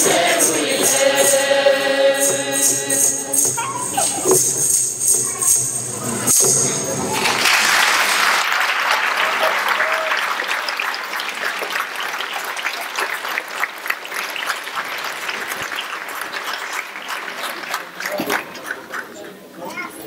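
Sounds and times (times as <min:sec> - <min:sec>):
audience applauding: 0:06.9 - 0:19.5.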